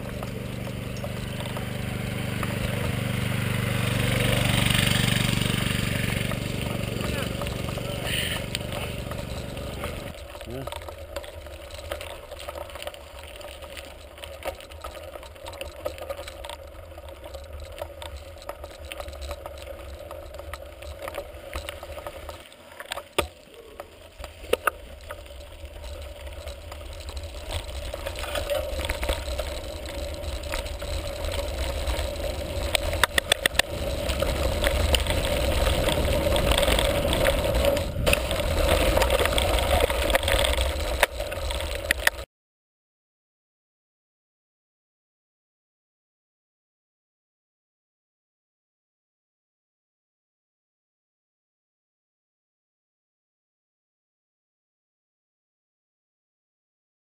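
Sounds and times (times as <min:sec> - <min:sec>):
bike rattling: 0:00.0 - 0:42.3
tyres crunching on stones: 0:00.0 - 0:42.3.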